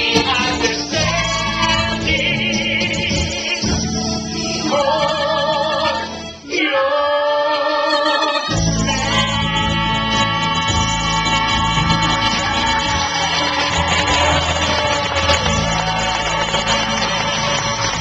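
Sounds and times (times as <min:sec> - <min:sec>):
woman and man singing duet: 0:00.0 - 0:03.8, 0:04.6 - 0:14.9
musical accompaniment: 0:00.0 - 0:18.0.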